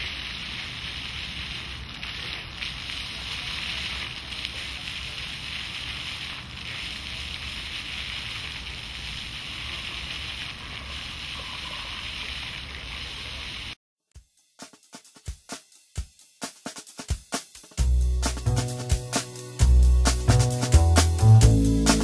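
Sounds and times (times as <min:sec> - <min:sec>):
fountain water splashing: 0:00.0 - 0:13.8
music with sharp drum beats: 0:14.1 - 0:22.0.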